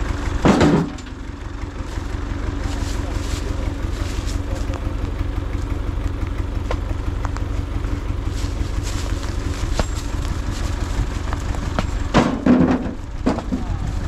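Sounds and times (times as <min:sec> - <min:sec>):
tractor engine idling: 0:00.0 - 0:14.0
stones knocking into trailer: 0:00.4 - 0:04.5, 0:08.4 - 0:14.0.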